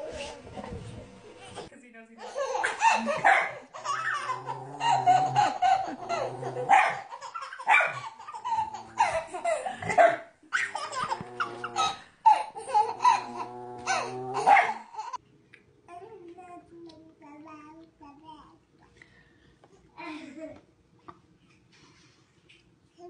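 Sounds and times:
toddler laughing: 2.2 - 15.2.

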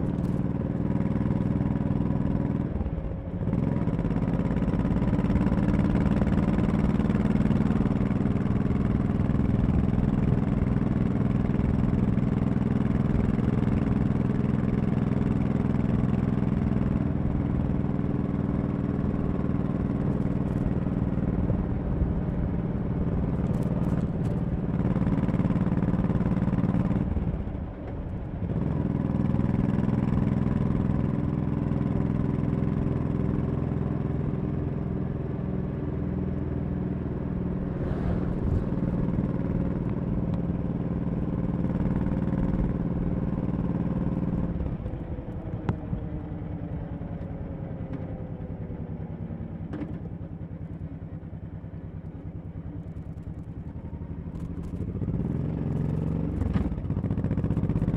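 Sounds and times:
motorcycle engine running: 0.0 - 57.9.

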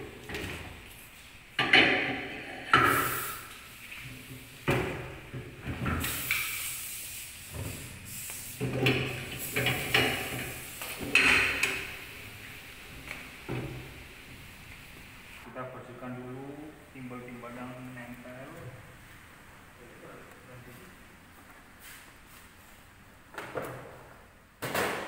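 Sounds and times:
metal clanks and knocks: 1.6 - 3.0, 8.6 - 11.9.

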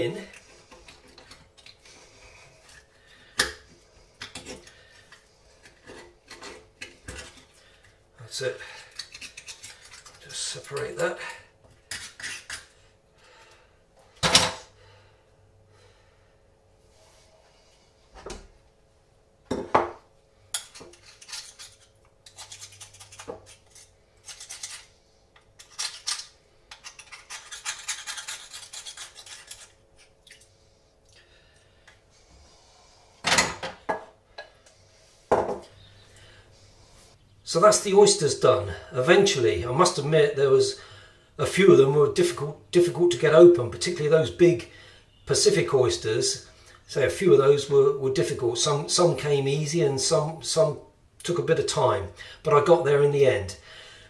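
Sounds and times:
knife scraping oyster shell: 8.7 - 11.0, 11.8 - 12.7, 20.5 - 30.4.

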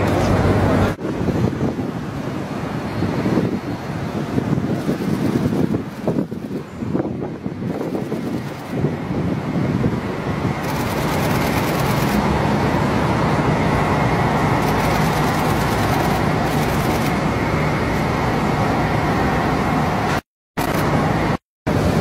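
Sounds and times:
traffic rumble and hiss: 0.0 - 22.0.

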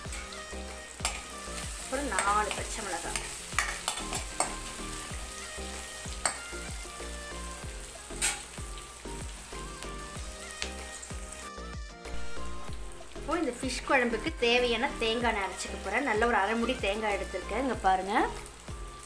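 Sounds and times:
food sizzling in hot oil: 0.0 - 19.0
metal spoon stirring: 1.0 - 1.3, 2.1 - 4.7.

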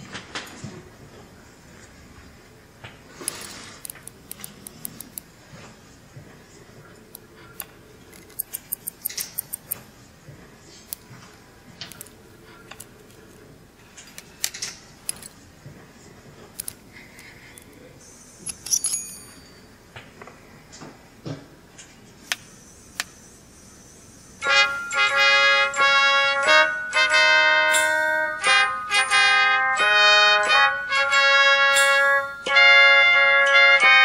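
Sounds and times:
small metal tools clicking: 8.1 - 9.8, 14.0 - 15.4, 16.6 - 17.7, 18.4 - 19.5
high metallic ring: 18.0 - 19.8, 22.5 - 25.9, 26.6 - 29.9, 30.8 - 32.6.

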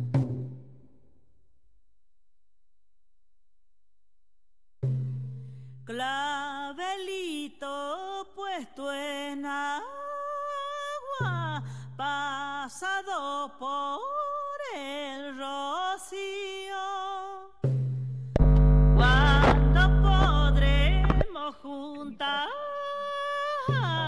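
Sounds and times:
woman singing: 5.9 - 17.6, 19.0 - 24.0.

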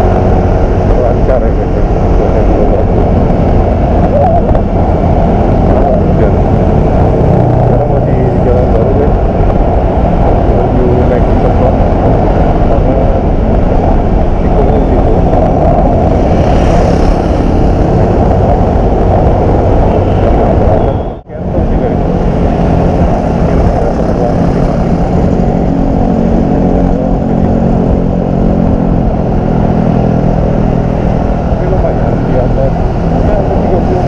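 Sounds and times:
wind roaring over microphone: 0.0 - 34.0
scooter engine: 12.5 - 20.3.

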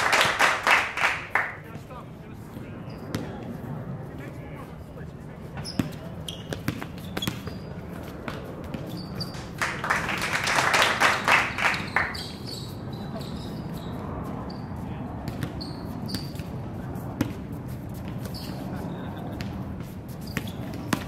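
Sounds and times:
sneaker squeaks: 2.8 - 3.4, 5.5 - 9.5, 11.6 - 16.6, 18.0 - 21.0
basketball bouncing: 5.7 - 9.0, 15.3 - 16.4, 17.2 - 17.4, 20.3 - 21.0.

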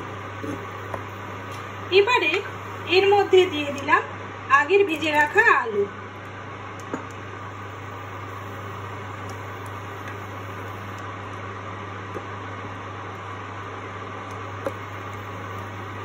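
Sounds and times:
low hum and hiss: 0.0 - 16.0.

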